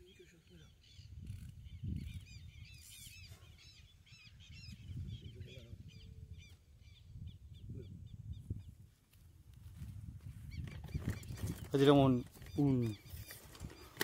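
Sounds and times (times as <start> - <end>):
birds chirping: 0.0 - 8.9, 10.3 - 14.0
wind on microphone: 0.8 - 14.0.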